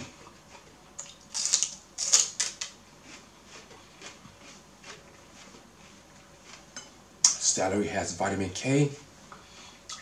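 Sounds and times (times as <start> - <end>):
chewing celery crunches: 0.5 - 5.7
celery crunching bite: 1.0 - 4.2.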